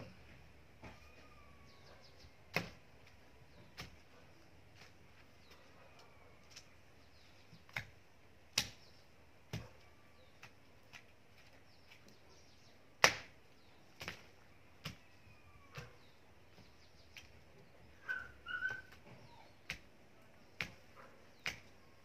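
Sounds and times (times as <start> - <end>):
hoe chopping into soil: 2.5 - 2.8.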